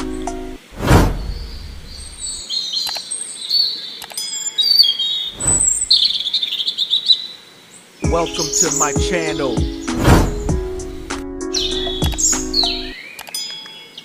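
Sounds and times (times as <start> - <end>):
backing music with bass: 0.0 - 0.6, 8.1 - 12.9
birds chirping: 0.0 - 14.0
whoosh: 0.7 - 2.4, 5.3 - 6.0, 10.0 - 11.2
sharp clicks: 2.8 - 3.1, 12.0 - 12.5, 13.2 - 13.6.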